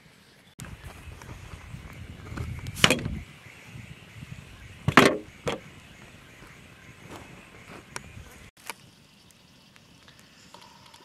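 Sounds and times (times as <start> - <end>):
low rumbling handling noise: 0.6 - 3.3.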